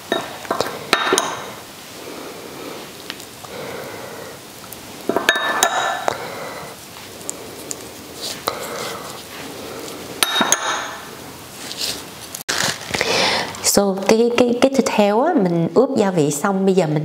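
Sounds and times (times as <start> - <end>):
soft rubbing on meat: 6.8 - 10.2, 11.4 - 12.4
metal spoon clinking on ceramic bowl: 10.2 - 11.0.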